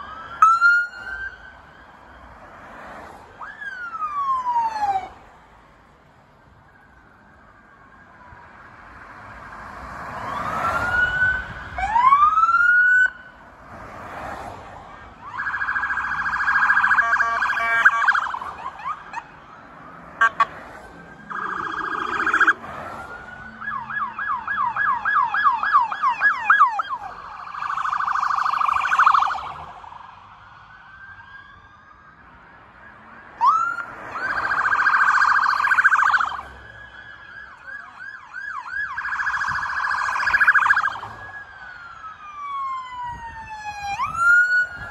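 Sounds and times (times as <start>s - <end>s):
siren yelp: 0.0s - 5.3s, 6.7s - 13.4s, 14.9s - 44.9s
police sirens wailing: 0.0s - 44.9s
siren warbling tones: 21.2s - 22.6s, 38.6s - 41.1s.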